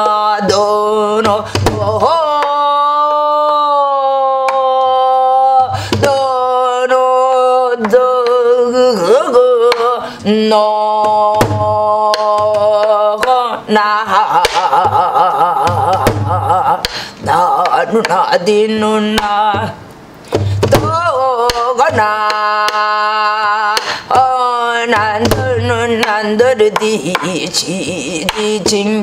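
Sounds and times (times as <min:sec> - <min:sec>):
low vocal drone: 0:00.0 - 0:19.8.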